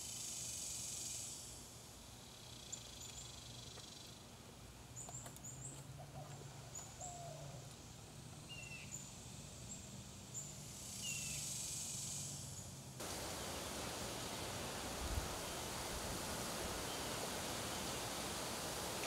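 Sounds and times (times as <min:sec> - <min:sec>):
steady hiss: 0:00.0 - 0:05.0, 0:06.6 - 0:19.0
low steady hum: 0:13.0 - 0:19.0.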